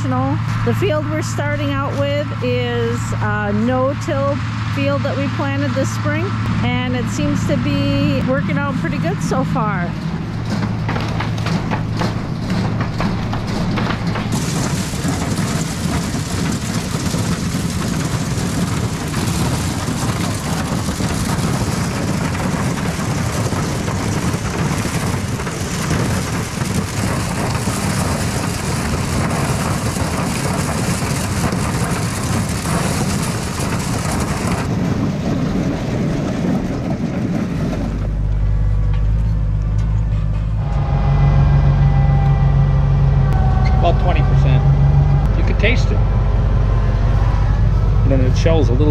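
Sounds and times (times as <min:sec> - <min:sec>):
tractor engine running: 0:00.0 - 0:48.9
corn rattling in a picker: 0:08.6 - 0:38.8.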